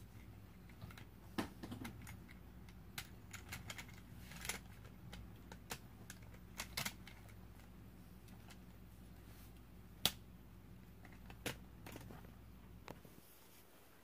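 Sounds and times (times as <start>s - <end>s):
plastic parts clicking: 0.6s - 7.7s.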